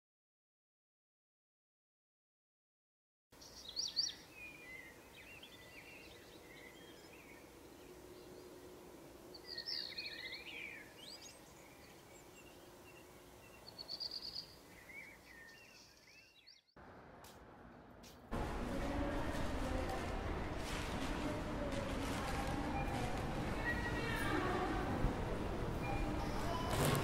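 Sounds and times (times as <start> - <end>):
birds chirping and calling: 9.3 - 16.7.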